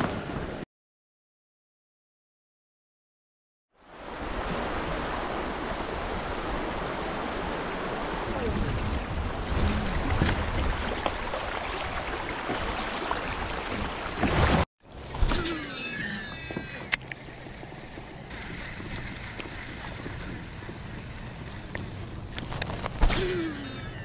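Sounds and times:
river water rushing: 3.9s - 14.6s
water splashing: 4.0s - 24.0s.

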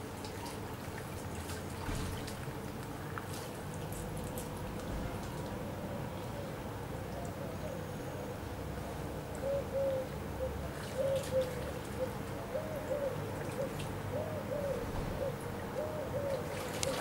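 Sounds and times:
bird low hooting notes: 4.9s - 17.0s.

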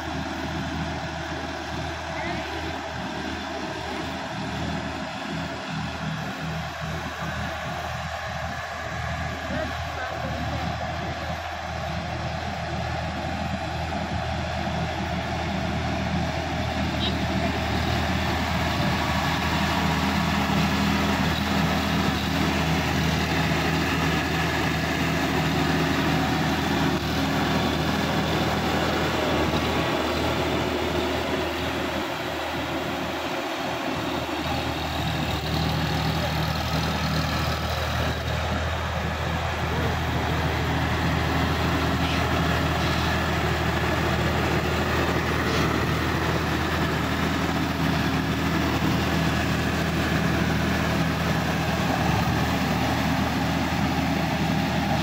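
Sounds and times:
tractor diesel engine under load: 0.0s - 55.0s.

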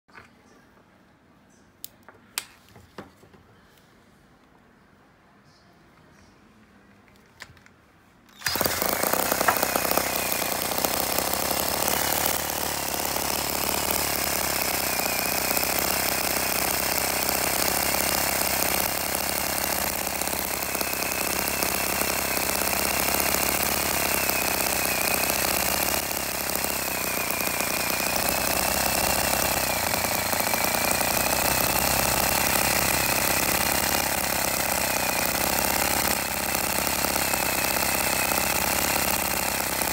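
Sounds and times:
small engine rattling: 8.3s - 39.9s.

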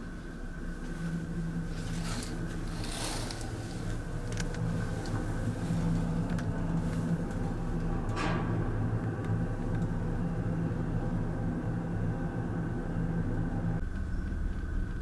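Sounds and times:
ship engine hum: 0.0s - 15.0s
curtain swishing on rail: 1.0s - 4.1s.

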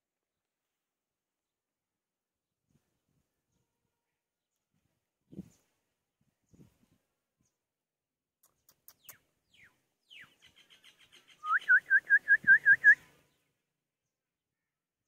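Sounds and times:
bird singing whistled notes: 8.9s - 13.4s.

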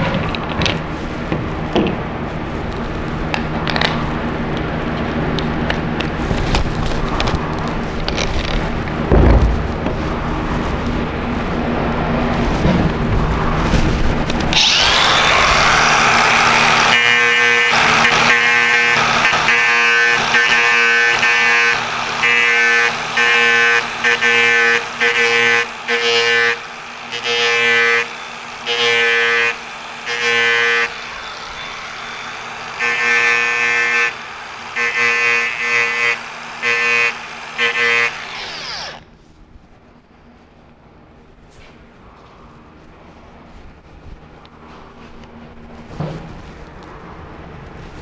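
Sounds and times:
angle grinder sanding: 14.5s - 39.1s.

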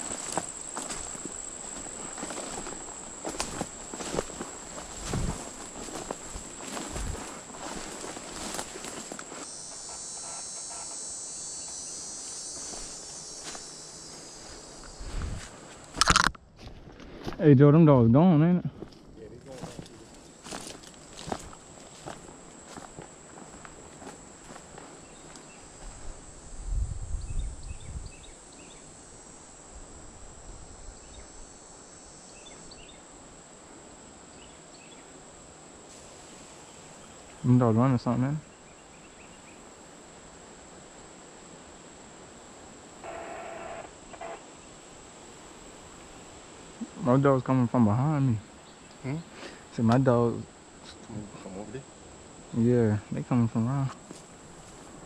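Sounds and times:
footsteps through dry leaves: 0.0s - 9.4s
insects trilling: 0.0s - 16.4s, 17.2s - 55.0s.

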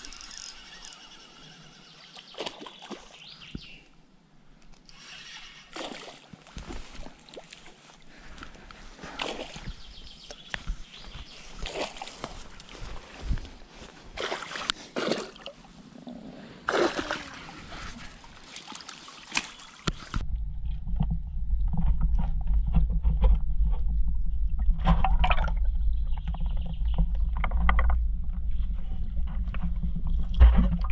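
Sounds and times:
muffled underwater rumble: 20.2s - 30.9s.

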